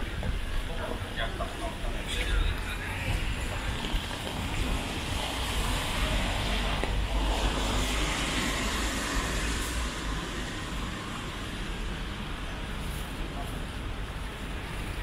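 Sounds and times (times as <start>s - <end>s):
steady low traffic rumble: 0.0s - 15.0s
car tyres hissing on wet road: 3.2s - 11.8s.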